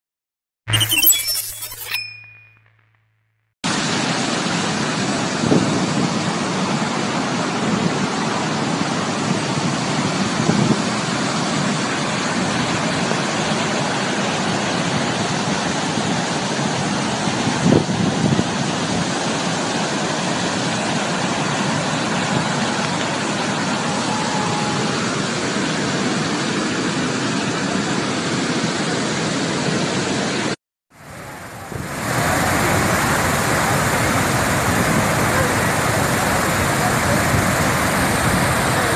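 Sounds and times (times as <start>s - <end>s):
floodwater rushing over a dam: 31.1s - 38.9s.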